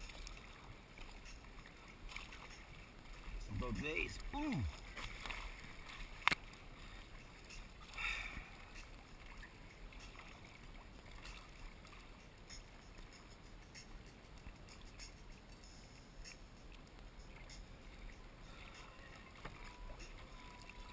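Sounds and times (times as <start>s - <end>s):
paddle splashing in water: 0.0s - 3.6s, 4.5s - 7.2s, 17.3s - 20.9s.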